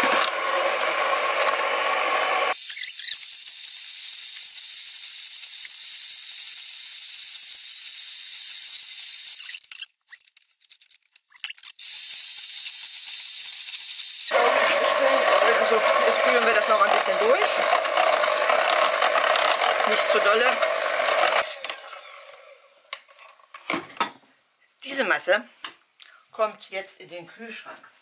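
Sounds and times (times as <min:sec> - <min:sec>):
electric hand mixer running: 0:00.0 - 0:09.5, 0:11.8 - 0:22.6.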